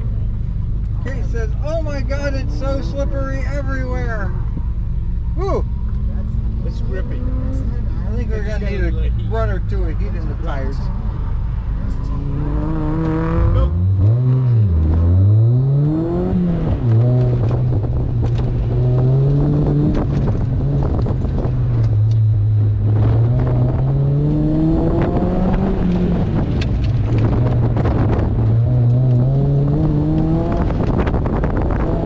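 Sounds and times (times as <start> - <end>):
car engine revving: 0.0 - 32.0
wind buffeting microphone: 16.1 - 21.9, 22.7 - 32.0.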